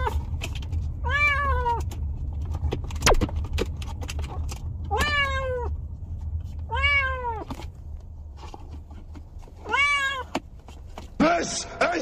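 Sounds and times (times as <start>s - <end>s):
low steady hum: 0.0s - 12.0s
cat meowing: 1.0s - 1.8s, 4.9s - 5.7s, 6.7s - 7.5s, 9.6s - 10.4s.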